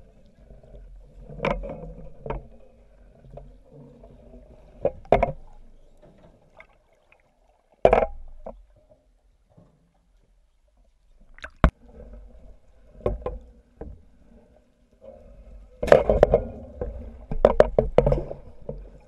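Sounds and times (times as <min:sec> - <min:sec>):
underwater water noise: 0:00.0 - 0:19.0.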